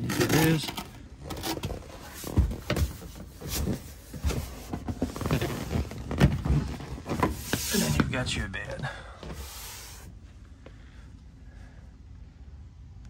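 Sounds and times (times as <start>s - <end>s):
bench cushions and frame shifting: 0.0s - 10.2s.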